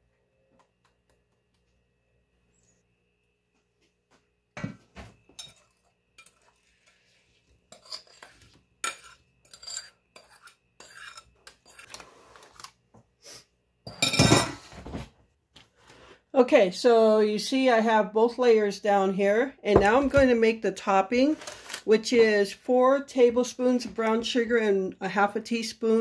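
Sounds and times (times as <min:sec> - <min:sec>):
utensils clinking on mixing bowl: 0:05.3 - 0:06.6, 0:07.7 - 0:12.0, 0:13.9 - 0:14.6.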